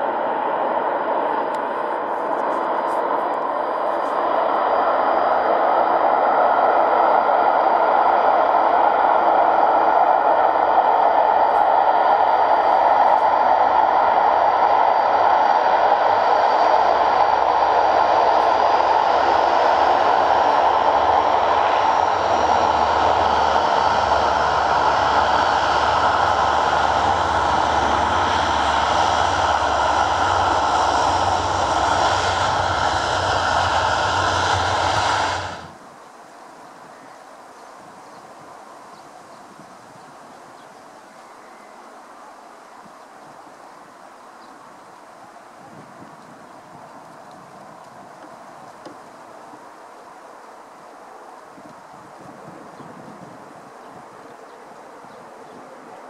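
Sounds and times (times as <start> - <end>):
turboprop engines running loud: 0.0 - 35.8.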